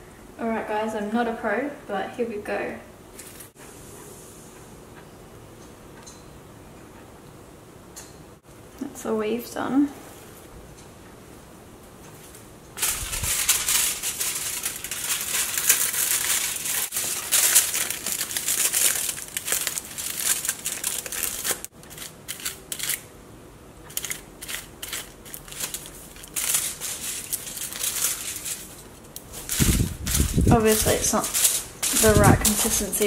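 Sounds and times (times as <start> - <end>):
aluminium foil crinkling: 12.2 - 23.1, 23.9 - 33.0.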